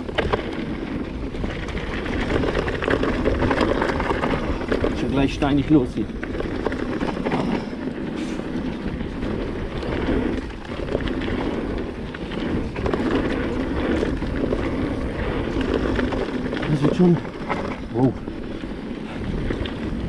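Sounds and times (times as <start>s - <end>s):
bike knocking on stones: 0.0s - 7.8s, 12.4s - 18.0s
bike tyres on gravel: 0.0s - 20.0s
wind on microphone: 0.0s - 20.0s.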